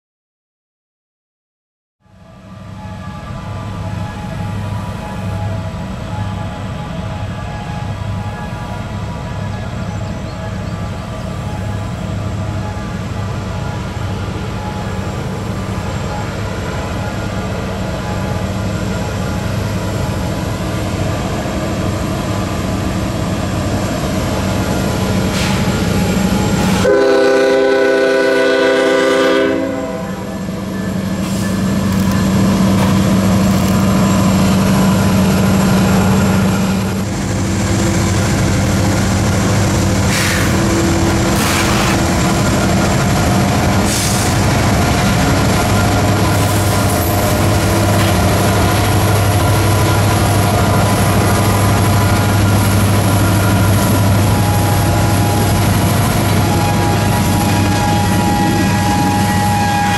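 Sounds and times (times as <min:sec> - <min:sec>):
diesel locomotive engine droning: 0:02.0 - 0:59.9
locomotive air horn blast: 0:26.6 - 0:30.5, 0:40.0 - 0:42.1, 0:46.3 - 0:59.9.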